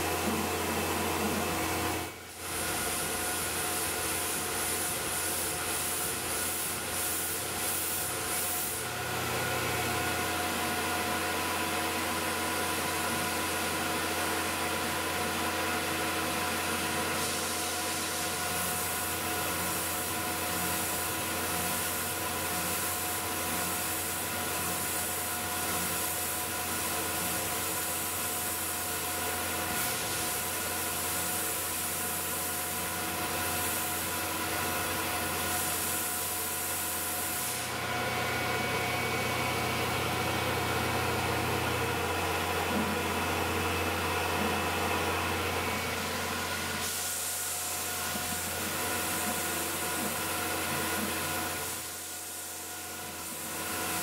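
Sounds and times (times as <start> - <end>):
mill spindle whine: 0.0 - 31.0, 36.2 - 54.0
coolant spray hiss: 2.0 - 8.9, 16.2 - 37.8, 45.9 - 54.0.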